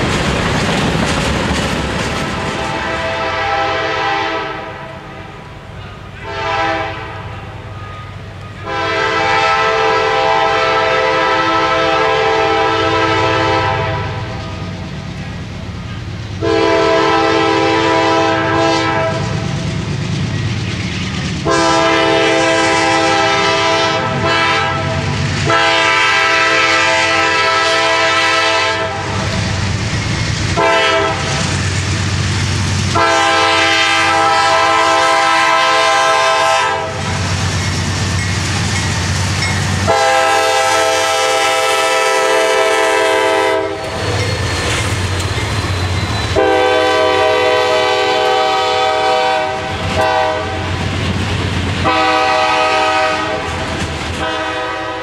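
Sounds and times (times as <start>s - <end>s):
wheels clicking over rail joints: 0.0s - 2.8s, 53.4s - 54.3s
locomotive engines rumbling: 0.0s - 55.0s
locomotive horn blasts: 2.6s - 5.3s, 6.2s - 14.4s, 16.4s - 19.4s, 21.4s - 29.2s, 30.6s - 31.4s, 32.9s - 37.2s, 39.8s - 44.0s, 46.3s - 50.8s, 51.8s - 53.6s, 54.2s - 55.0s.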